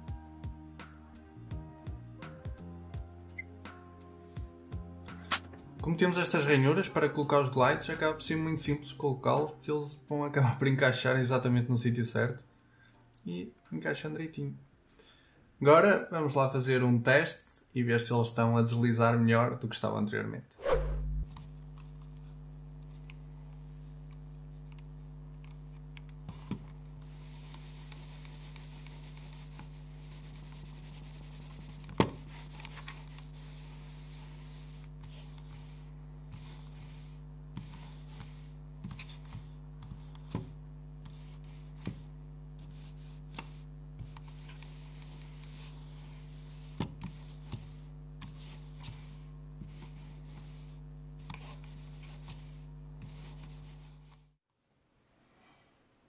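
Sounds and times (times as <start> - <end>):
mouse sliding on mousepad: 20.6 - 21.4, 26.3 - 54.2
steady low hum: 20.6 - 54.4.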